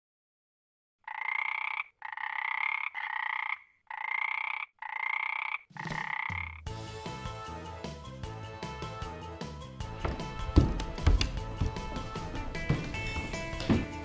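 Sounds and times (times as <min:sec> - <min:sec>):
frog croaking: 0:01.0 - 0:06.7
music: 0:06.3 - 0:14.0.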